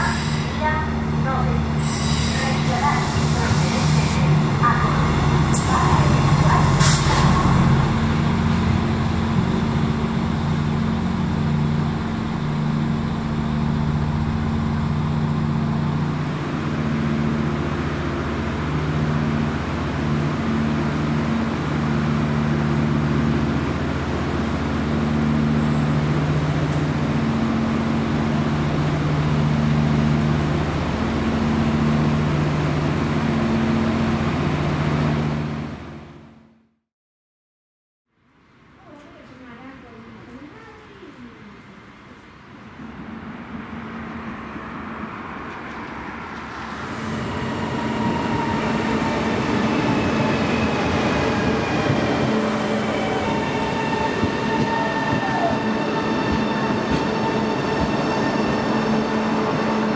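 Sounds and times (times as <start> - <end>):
train diesel engine idling: 0.0 - 34.7
train wheels squealing: 47.0 - 59.9.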